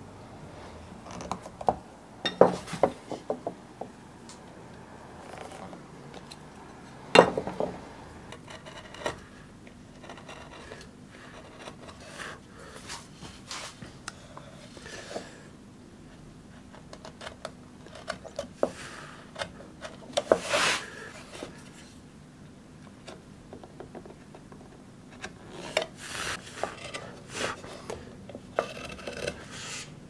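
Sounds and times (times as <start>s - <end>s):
carving tools cutting wood: 10.0s - 12.4s, 25.5s - 29.9s.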